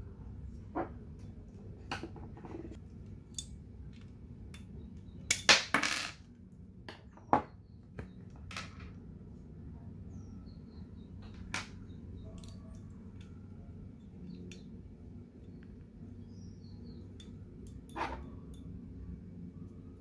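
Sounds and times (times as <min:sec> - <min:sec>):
small parts clicking and clattering: 0:11.2 - 0:14.8.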